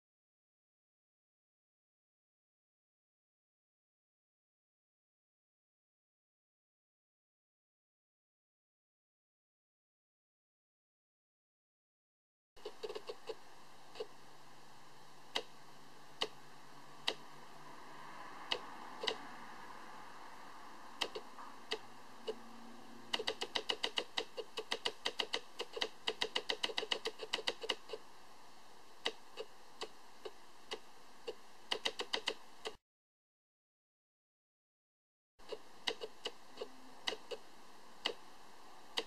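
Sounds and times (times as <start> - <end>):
faint steady hiss: 12.6 - 32.8, 35.4 - 39.0.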